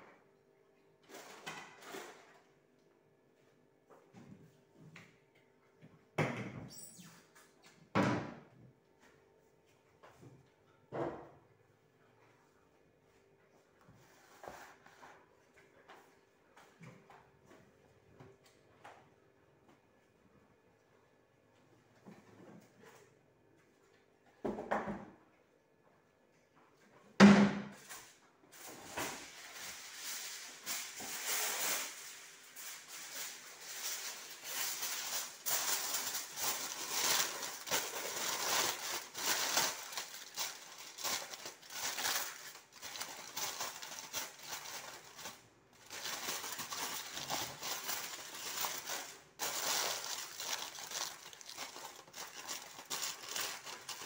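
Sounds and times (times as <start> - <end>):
aluminium foil crinkling: 28.6 - 54.0.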